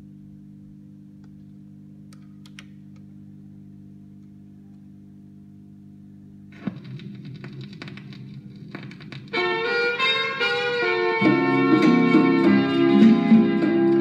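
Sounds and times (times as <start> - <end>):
record player humming: 0.0 - 14.0
vinyl surface crackle: 6.5 - 9.8.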